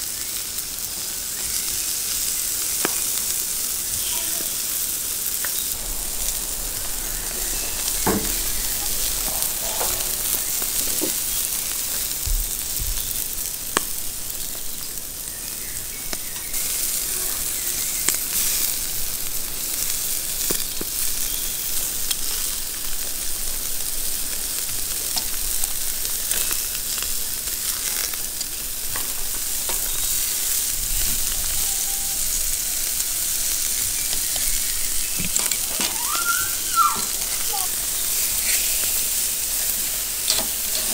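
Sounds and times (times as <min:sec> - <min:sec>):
meat sizzling on a grill: 0:00.0 - 0:40.9
metal tongs clicking on grate: 0:40.3 - 0:40.9.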